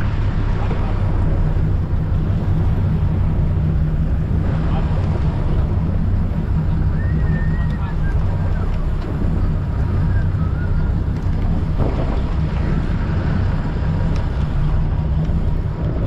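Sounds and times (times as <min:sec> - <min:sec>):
boat engines rumbling: 0:00.0 - 0:16.0
wind on microphone: 0:00.0 - 0:16.0.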